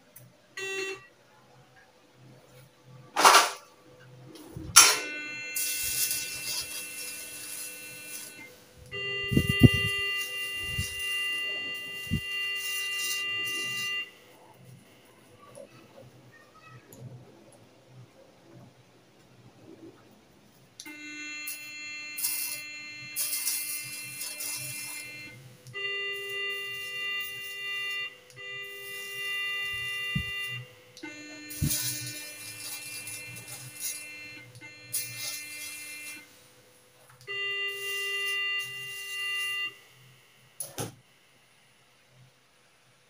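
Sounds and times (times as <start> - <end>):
electrode sparking crackle: 3.2 - 3.7, 4.3 - 15.8, 20.8 - 41.1
alternating electronic activation tone: 4.3 - 15.0, 20.9 - 36.4, 37.2 - 40.6.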